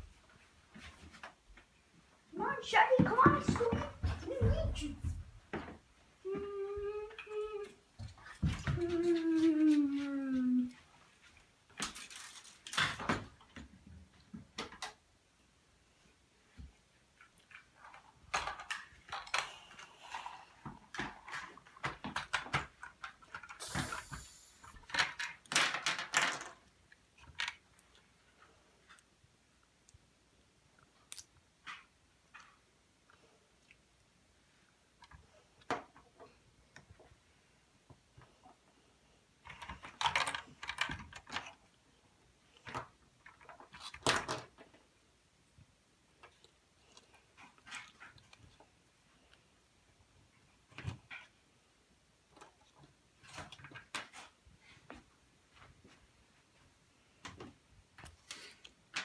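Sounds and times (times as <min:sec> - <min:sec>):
plastic bricks clicking and clattering: 0:24.8 - 0:27.6, 0:39.5 - 0:41.6.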